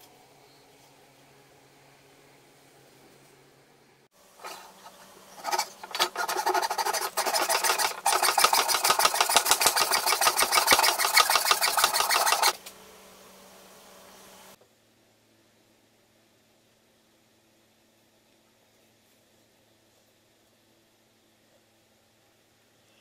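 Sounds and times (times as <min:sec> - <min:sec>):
hand saw cutting wood: 0:04.4 - 0:12.6.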